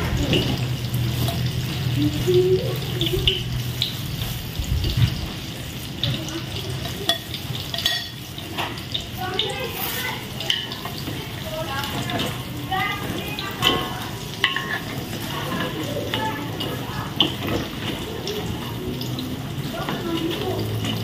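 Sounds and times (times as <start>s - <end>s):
water running from tap: 0.0s - 21.0s
utensils clinking and knocking: 6.8s - 8.8s, 10.4s - 21.0s.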